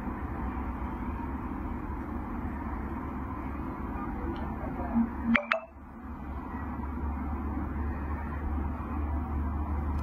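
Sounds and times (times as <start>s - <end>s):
high electronic beeps: 5.2s - 5.8s.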